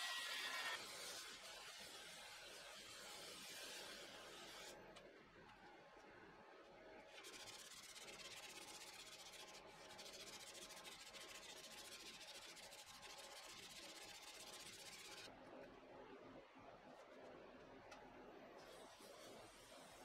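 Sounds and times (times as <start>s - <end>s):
sandpaper rubbing on wood: 0.0s - 4.7s, 7.2s - 15.2s.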